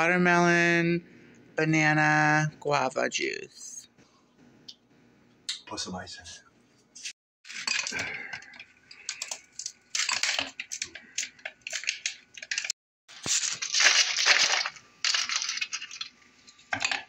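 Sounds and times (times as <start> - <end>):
ice cracking in plastic tray: 7.5 - 16.1.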